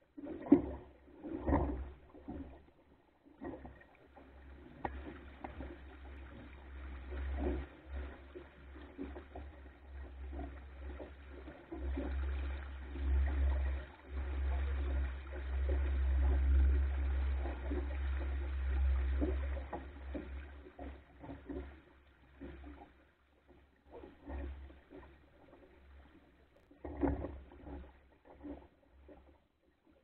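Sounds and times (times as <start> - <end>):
wind rumble on microphone: 0.0 - 2.6, 3.4 - 21.8
water rushing along wooden hull: 0.0 - 30.0.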